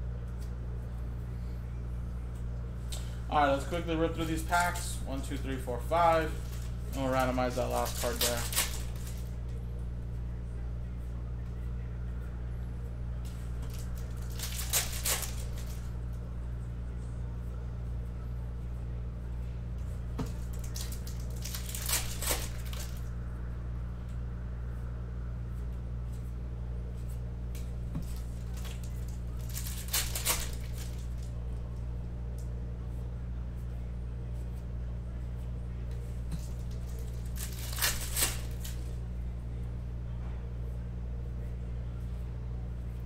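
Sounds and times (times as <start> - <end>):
steady low hum: 0.0 - 43.0
card pack wrappers tearing: 4.1 - 9.3, 13.6 - 15.9, 20.3 - 23.1, 28.0 - 31.3, 36.4 - 39.0.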